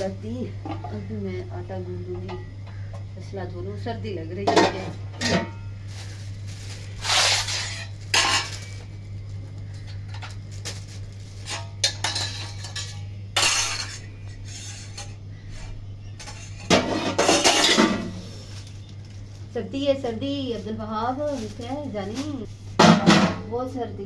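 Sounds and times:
steady low hum: 0.0s - 24.0s
metal dishes clattering: 4.4s - 5.7s, 7.1s - 8.7s, 11.4s - 15.2s, 16.2s - 18.2s, 22.8s - 23.4s.

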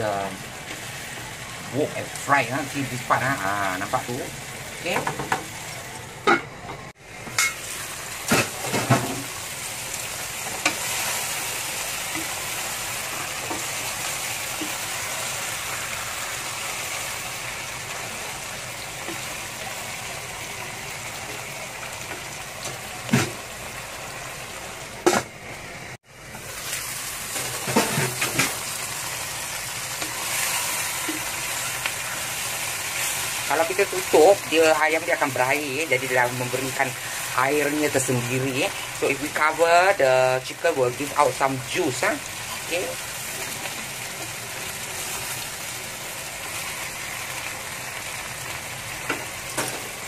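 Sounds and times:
chicken sizzling in a wok: 0.0s - 50.0s
utensil scraping a wok: 26.4s - 28.8s.

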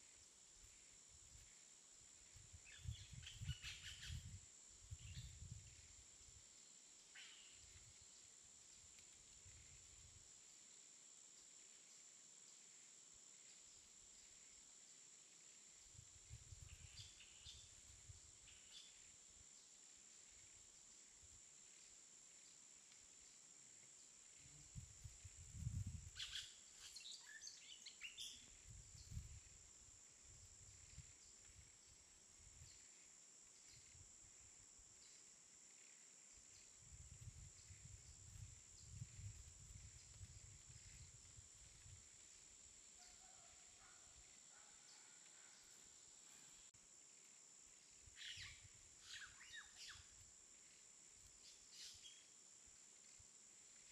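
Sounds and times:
steady high hiss: 0.0s - 53.9s.

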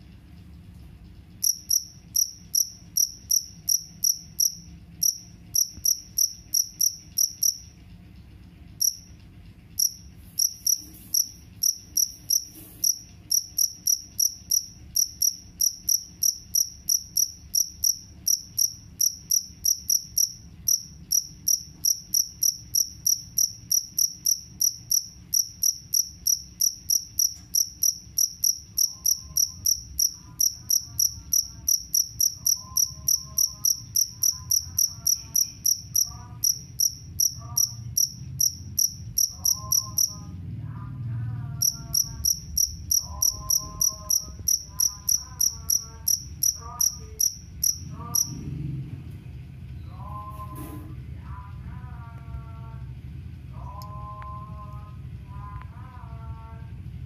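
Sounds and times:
cricket chirping: 1.3s - 7.9s, 8.7s - 40.3s, 41.6s - 48.4s.

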